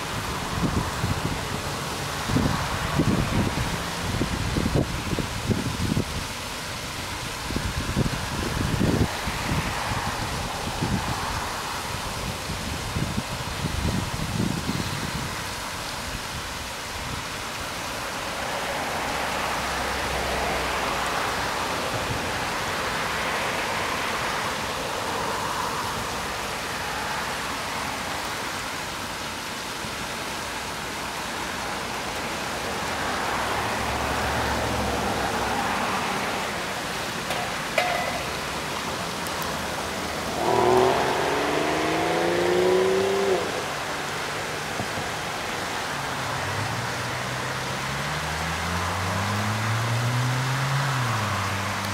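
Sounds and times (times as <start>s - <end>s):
cars passing on road: 0.0s - 51.9s
fountain jets splashing: 0.0s - 51.9s
loud vehicle engine passing: 33.0s - 51.9s.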